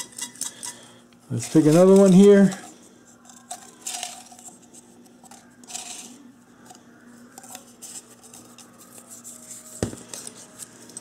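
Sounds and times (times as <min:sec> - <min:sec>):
paper slips rustling in metal cup: 0:00.0 - 0:02.7.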